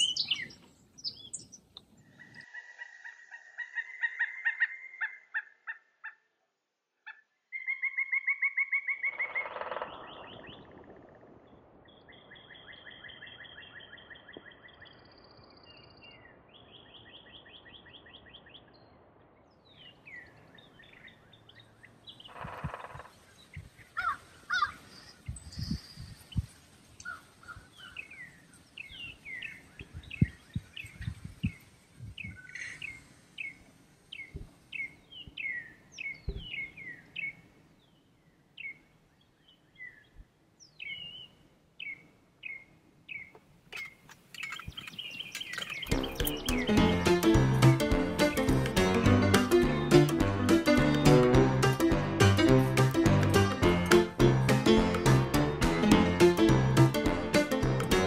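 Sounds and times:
bird trill: 0:00.0 - 0:01.6, 0:07.1 - 0:10.6, 0:40.8 - 0:51.3
birds chirping and singing: 0:00.0 - 0:04.9, 0:19.7 - 0:38.0, 0:39.4 - 0:55.1.

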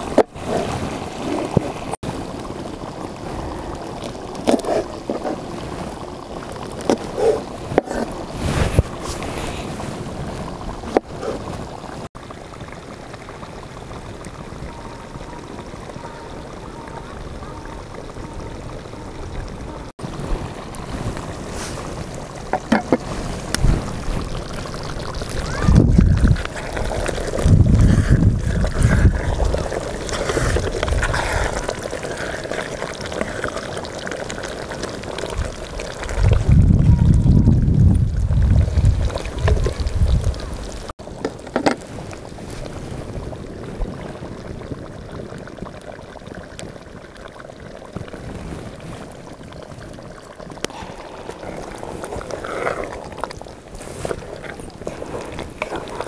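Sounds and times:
wind buffeting microphone: 0:14.0 - 0:32.4, 0:35.2 - 0:40.9.

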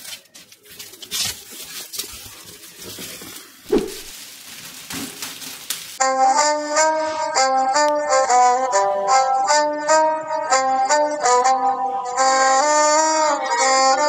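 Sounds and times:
crinkly rustling: 0:00.0 - 0:06.0
sharp thump: 0:03.7 - 0:04.1
background music with violin: 0:06.0 - 0:14.0.

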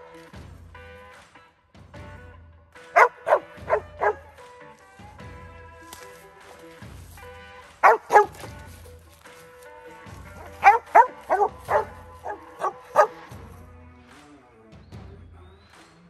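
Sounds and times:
faint background music: 0:00.0 - 0:16.0
dog barking: 0:03.0 - 0:04.3, 0:07.8 - 0:08.6, 0:10.4 - 0:13.3.

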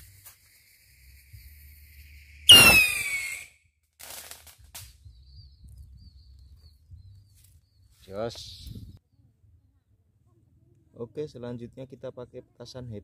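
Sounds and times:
firework rocket whoosh and whistle: 0:00.0 - 0:05.0
faint firework cracks: 0:02.5 - 0:05.0.

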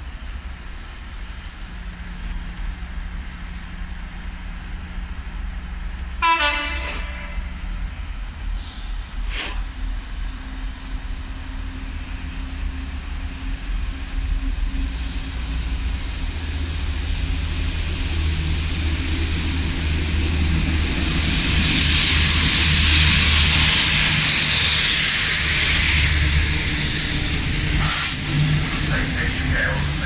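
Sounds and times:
diesel locomotive engines droning: 0:00.0 - 0:30.0
train wheels rumbling: 0:00.0 - 0:30.0
high-pressure water jets hissing: 0:21.5 - 0:30.0.

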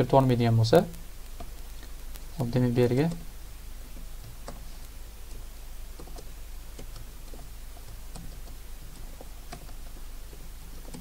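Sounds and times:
low steady hum: 0:00.0 - 0:11.0
keyboard keystrokes clicking: 0:10.8 - 0:11.0.

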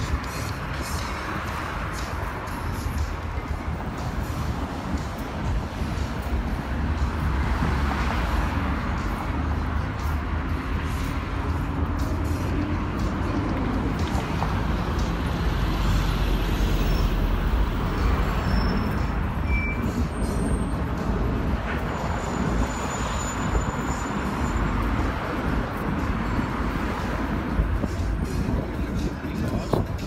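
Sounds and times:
busy street traffic: 0:00.0 - 0:30.0
brief high squeaks: 0:18.3 - 0:20.2.

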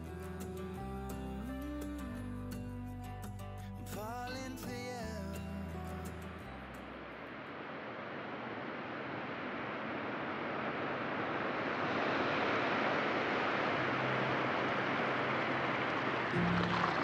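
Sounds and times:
surf washing up a beach: 0:07.3 - 0:17.0.

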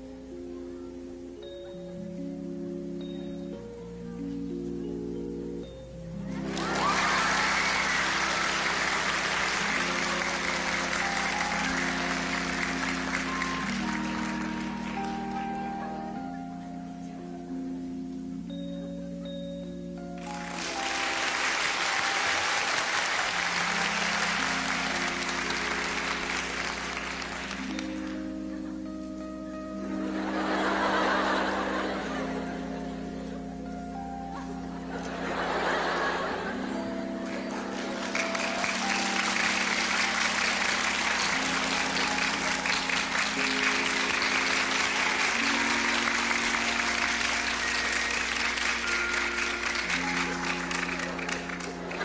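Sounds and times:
music with sustained chords: 0:00.0 - 0:52.0
audience applauding: 0:06.3 - 0:16.3, 0:20.2 - 0:28.3, 0:37.2 - 0:52.0.

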